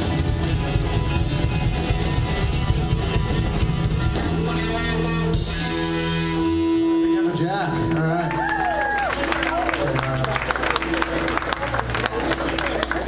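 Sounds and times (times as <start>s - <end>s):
live rock band playing: 0.0s - 13.0s.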